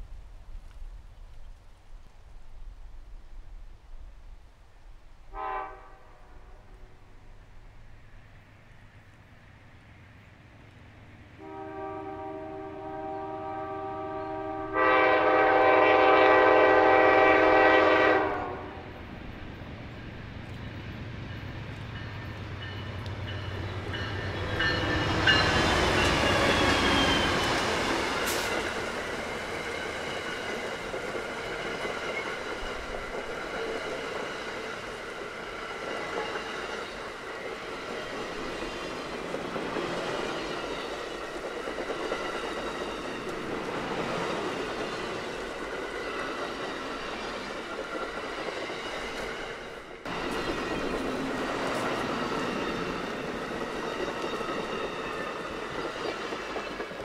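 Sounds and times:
train horn blast: 5.3s - 7.2s, 11.4s - 19.0s
diesel locomotive engines: 5.3s - 57.0s
train wheels clattering: 20.0s - 57.0s.

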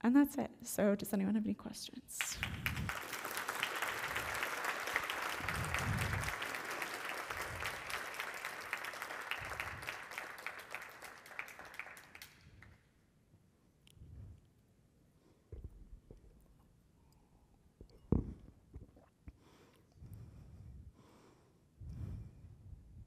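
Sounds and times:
audience applauding: 2.2s - 12.7s.

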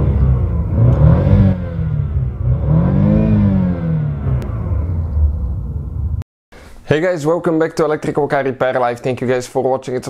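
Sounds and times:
engine revving: 0.0s - 6.2s.

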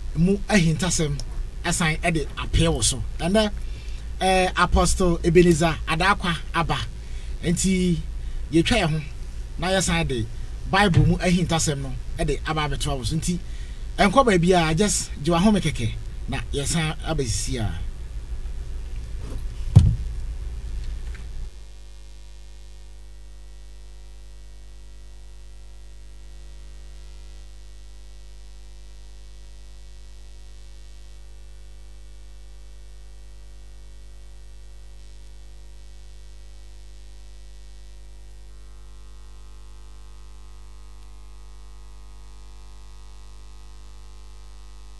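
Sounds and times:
faint hiss: 0.0s - 21.5s
electrical mains hum: 0.0s - 44.9s.

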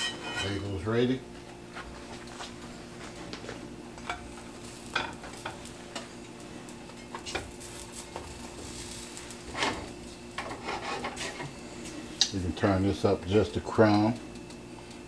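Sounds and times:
butter and oil sizzling in skillets: 4.1s - 11.5s.

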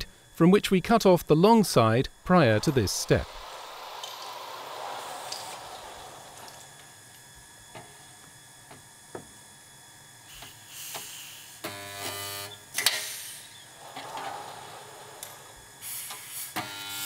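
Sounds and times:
electrical welding buzz: 1.3s - 17.0s
welding gun hiss: 1.4s - 8.1s, 10.2s - 11.7s, 12.4s - 13.9s, 15.2s - 17.0s.

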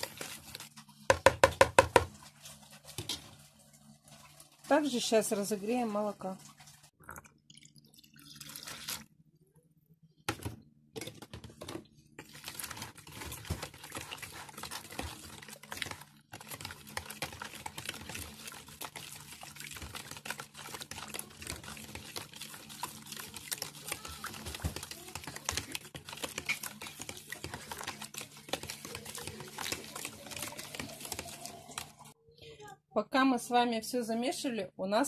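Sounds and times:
fork beating batter in a bowl: 0.0s - 3.3s, 11.2s - 32.2s.

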